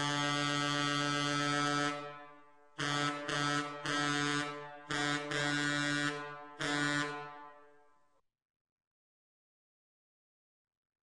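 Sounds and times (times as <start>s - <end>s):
steamboat horn blowing: 0.0s - 7.9s.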